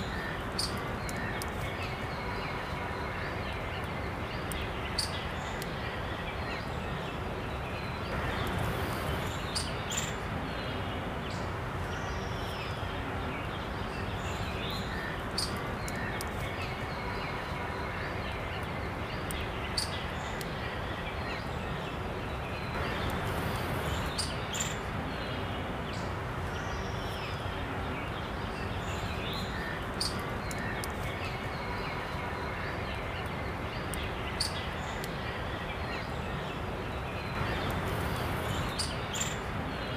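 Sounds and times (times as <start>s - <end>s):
outdoor background noise: 0.0s - 39.9s
faint sharp clicks: 15.3s - 16.7s, 33.2s - 35.2s.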